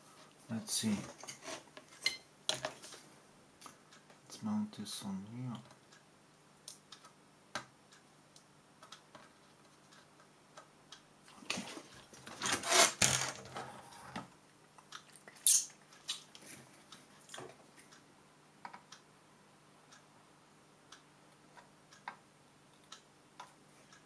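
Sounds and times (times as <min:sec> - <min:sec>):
rustling scrape: 0:01.0 - 0:01.7.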